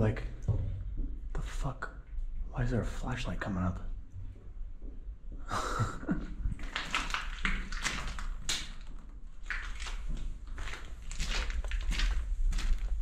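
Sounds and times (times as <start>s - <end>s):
footsteps scuffing on gritty floor: 9.4s - 13.0s.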